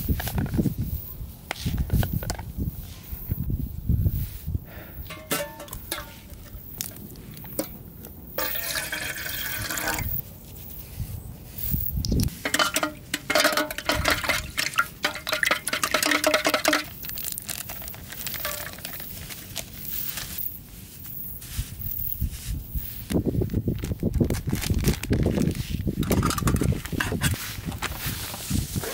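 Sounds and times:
liquid pouring into container: 0:08.4 - 0:10.2, 0:12.6 - 0:16.9.

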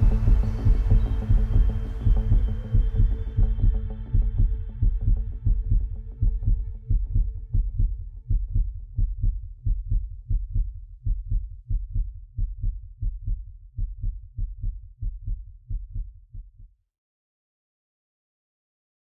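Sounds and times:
low bass pulse: 0:00.0 - 0:16.6.

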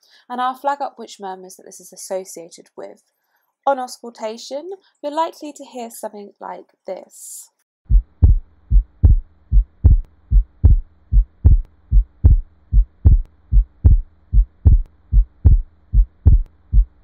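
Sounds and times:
faint low hum: 0:07.9 - 0:17.0
heartbeat through stethoscope: 0:07.9 - 0:17.0.

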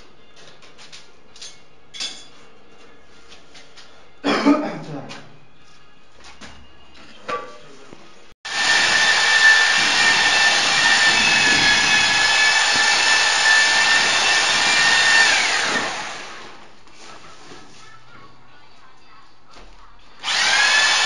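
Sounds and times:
electric drill mixer whining: 0:08.5 - 0:16.6, 0:20.2 - 0:21.0.

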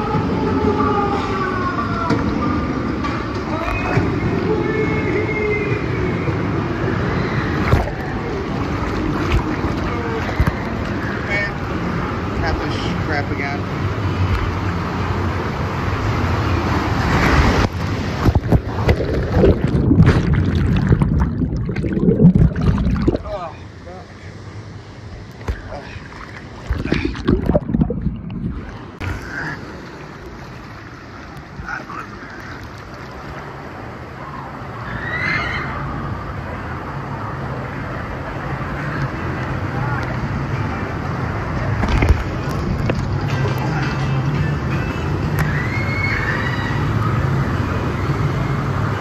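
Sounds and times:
water splashing and rushing: 0:06.6 - 0:34.8, 0:37.2 - 0:43.6
muffled underwater sloshing: 0:16.7 - 0:34.2
steady low hum: 0:17.6 - 0:32.9.

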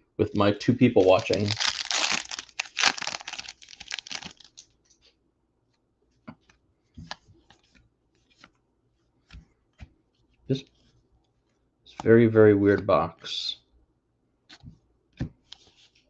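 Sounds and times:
foil wrapper crinkling and tearing: 0:01.0 - 0:04.7.

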